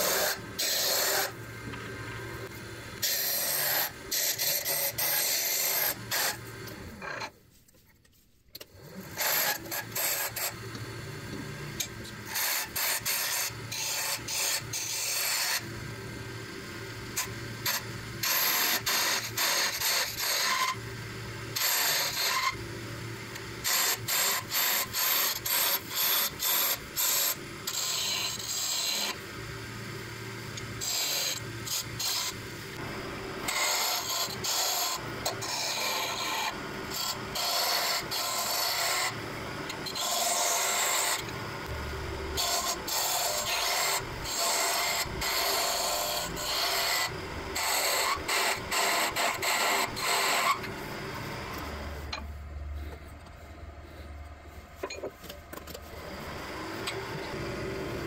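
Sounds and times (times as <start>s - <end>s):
lathe tool cutting wood: 0.0s - 7.0s, 9.0s - 52.2s.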